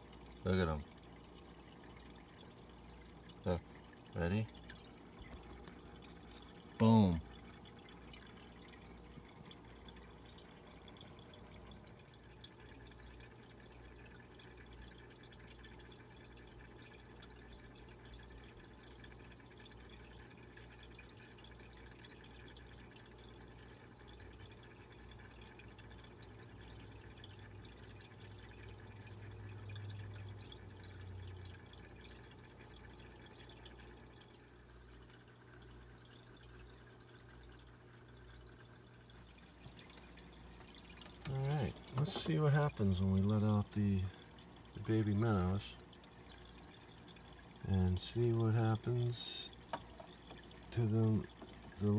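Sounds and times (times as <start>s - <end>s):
aquarium bubbling and dripping: 0.0s - 51.9s
low steady hum: 0.0s - 51.9s.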